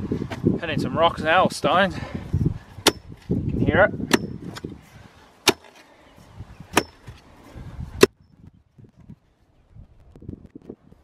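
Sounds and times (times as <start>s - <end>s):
digging tool striking stones: 2.8s - 3.4s, 4.0s - 4.8s, 5.4s - 5.9s, 6.7s - 7.2s.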